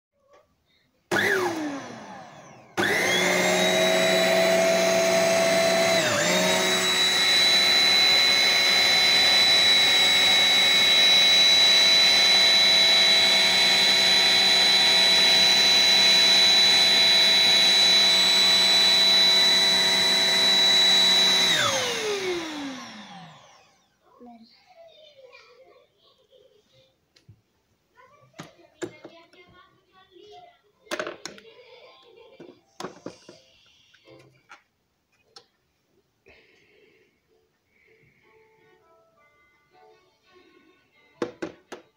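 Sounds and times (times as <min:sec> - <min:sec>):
handheld vacuum cleaner motor whine: 0:01.1 - 0:24.0.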